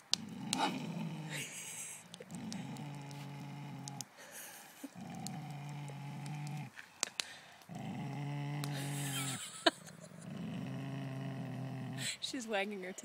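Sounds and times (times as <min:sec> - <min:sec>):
sharp clicks: 0:00.0 - 0:00.7, 0:01.6 - 0:04.1, 0:05.0 - 0:07.8
dog play-growling: 0:00.1 - 0:04.1, 0:04.8 - 0:06.7, 0:07.7 - 0:12.2.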